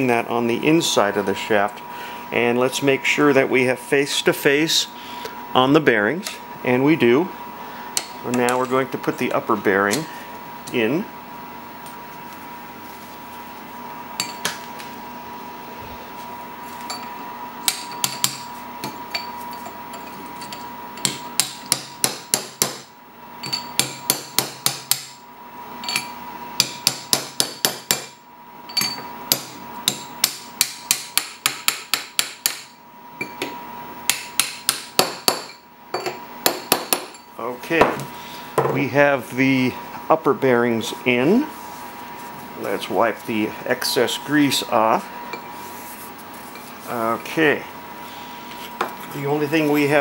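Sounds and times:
hammer tapping metal tube: 0:28.8 - 0:32.7.

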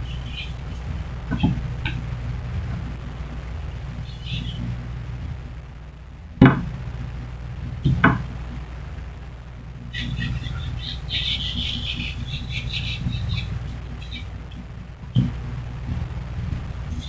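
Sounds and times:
small birds chirping: 0:00.0 - 0:05.8, 0:07.8 - 0:15.8
low steady hum: 0:00.0 - 0:17.0
sharp knocks: 0:06.4 - 0:06.7, 0:07.8 - 0:08.3.

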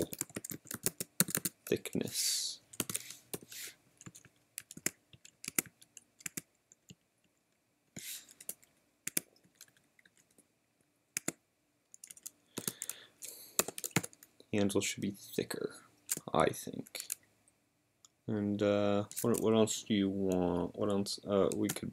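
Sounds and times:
computer keyboard typing: 0:00.0 - 0:02.0, 0:02.7 - 0:07.0, 0:08.3 - 0:10.4, 0:11.2 - 0:14.3, 0:19.1 - 0:19.5, 0:21.4 - 0:21.9.

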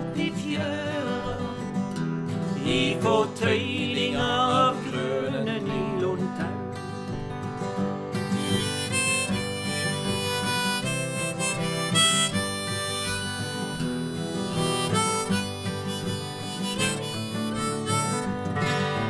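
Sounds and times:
strummed acoustic guitars: 0:00.0 - 0:19.0
harmonica melody: 0:07.6 - 0:19.0.

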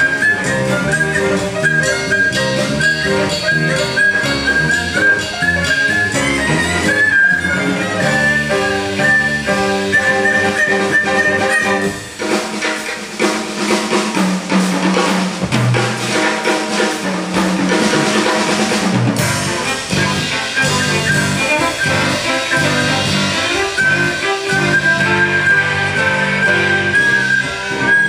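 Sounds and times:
cello: 0:00.0 - 0:12.0, 0:19.2 - 0:28.0
drum kit playing: 0:00.0 - 0:28.0
piano: 0:00.0 - 0:28.0.

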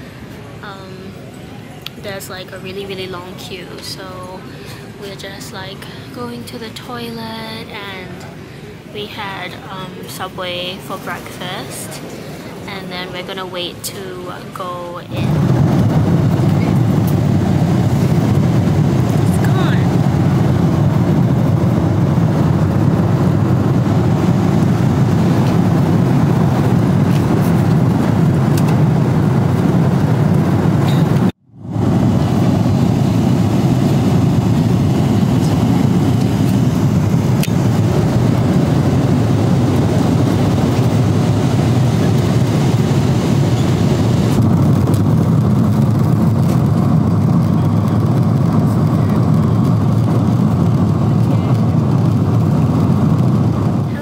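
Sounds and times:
airliner cabin engine whoosh: 0:15.2 - 0:54.0.

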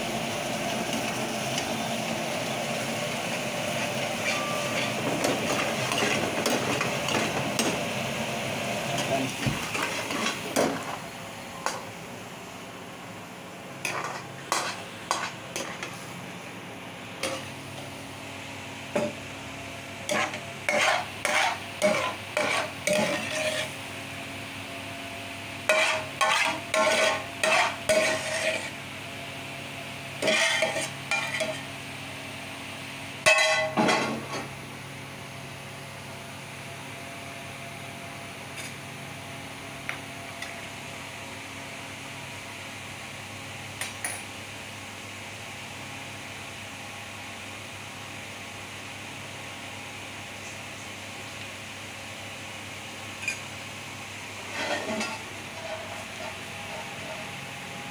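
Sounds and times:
metal ladle scraping a pan: 0:20.1 - 0:23.8, 0:25.7 - 0:28.7, 0:30.2 - 0:31.6, 0:54.4 - 0:57.3.

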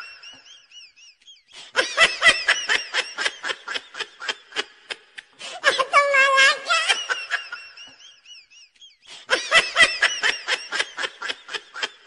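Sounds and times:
high-pitched laughter: 0:00.0 - 0:12.0.

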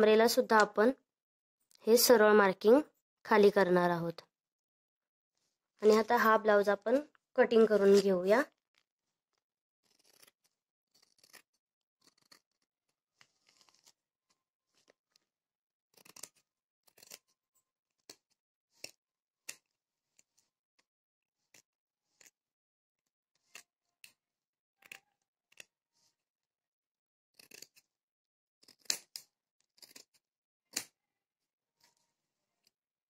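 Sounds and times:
scissors snipping cloth: 0:27.4 - 0:27.9, 0:28.6 - 0:31.0.

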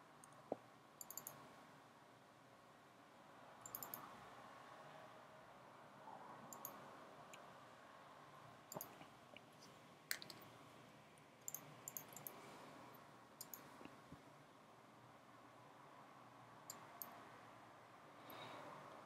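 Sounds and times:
faint computer mouse clicks: 0:01.0 - 0:01.4, 0:03.6 - 0:04.1, 0:06.5 - 0:06.8, 0:08.7 - 0:09.1, 0:11.4 - 0:12.4, 0:13.4 - 0:14.0.

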